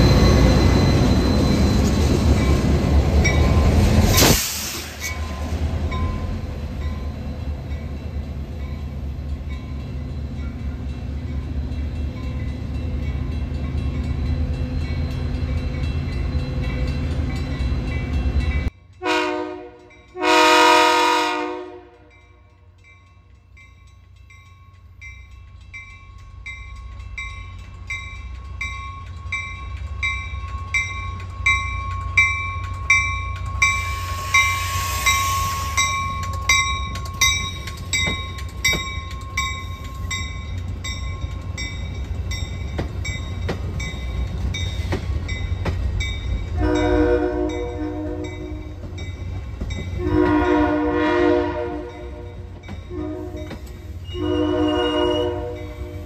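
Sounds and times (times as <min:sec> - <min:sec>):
train rumbling: 0:00.0 - 0:56.0
locomotive horn blasts: 0:19.0 - 0:22.1, 0:46.6 - 0:48.7, 0:50.0 - 0:56.0
wheels clicking over rail joints: 0:35.8 - 0:46.5.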